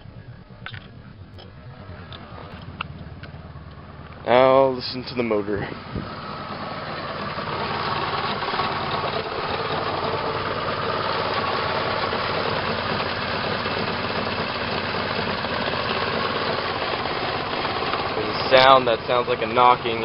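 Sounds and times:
car engine idling roughly: 1.4 - 20.0
knocking inside engine: 5.6 - 20.0.

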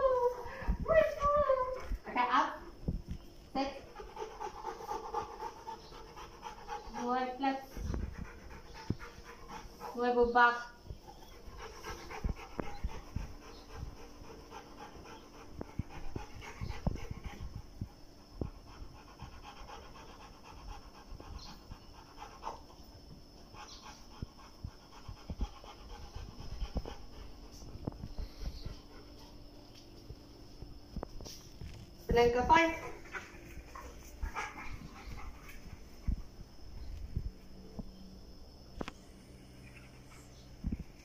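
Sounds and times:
dog panting: 3.6 - 29.6, 32.3 - 36.4.

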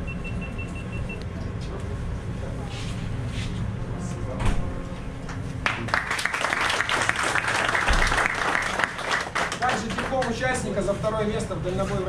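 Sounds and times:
people clapping: 5.2 - 10.8.

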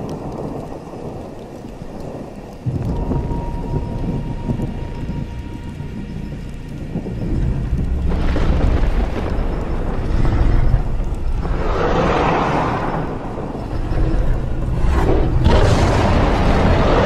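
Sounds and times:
deep rumble: 0.0 - 17.0
rolling thunder: 0.0 - 17.0.

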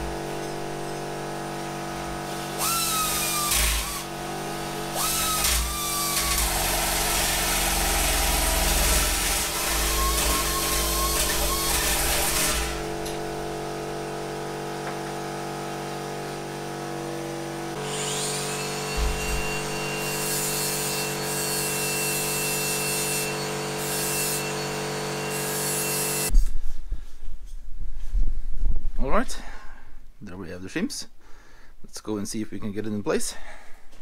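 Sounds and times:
power shear cutting sheet steel: 1.7 - 13.6, 17.4 - 26.3.

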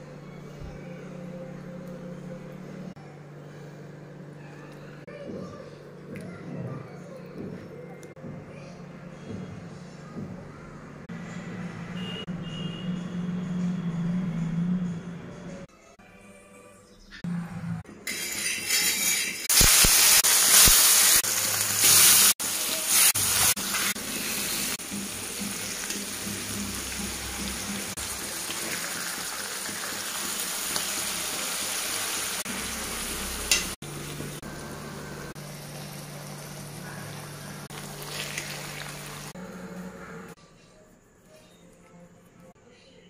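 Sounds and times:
fish sizzling in oil: 19.2 - 39.4.

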